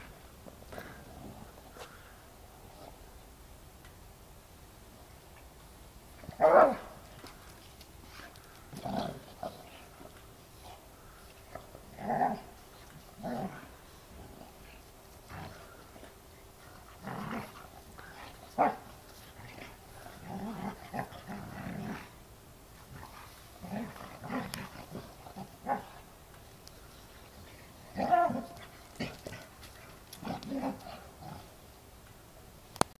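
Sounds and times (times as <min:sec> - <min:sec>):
dogs growling: 0:08.1 - 0:10.8, 0:11.4 - 0:22.2, 0:22.8 - 0:26.1, 0:27.3 - 0:31.5.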